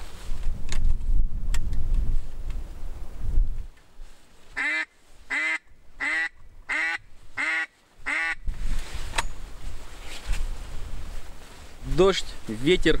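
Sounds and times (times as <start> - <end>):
duck quacks: 4.6 - 8.4.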